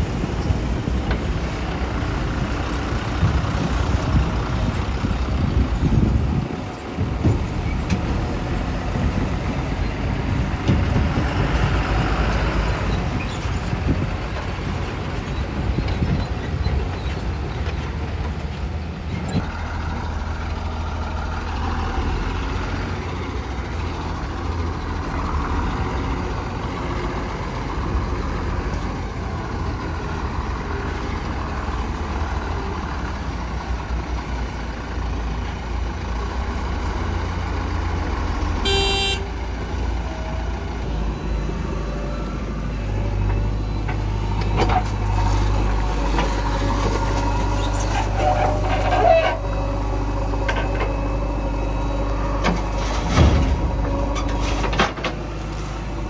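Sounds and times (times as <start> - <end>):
heavy diesel engines running: 0.0 - 56.0.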